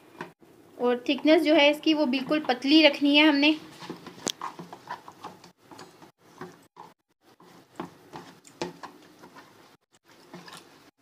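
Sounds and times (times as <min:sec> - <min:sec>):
spoon tapping and scraping bowl: 0:03.8 - 0:09.6.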